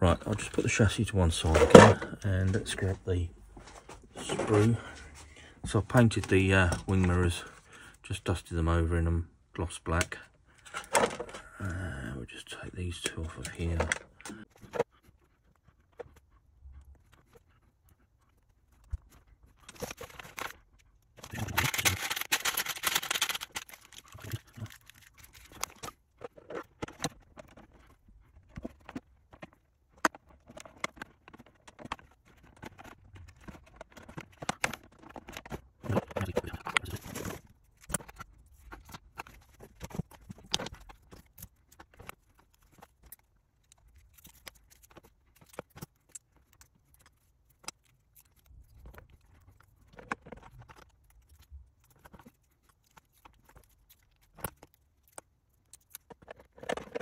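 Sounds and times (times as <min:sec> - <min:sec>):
plastic parts clicking and tapping: 0:09.9 - 0:11.4, 0:13.0 - 0:14.9, 0:18.8 - 0:57.0.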